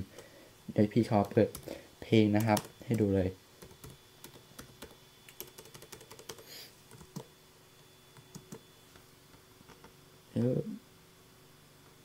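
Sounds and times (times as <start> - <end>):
laptop keyboard typing: 1.0 - 1.7, 2.3 - 7.3, 8.2 - 8.7, 9.6 - 10.0.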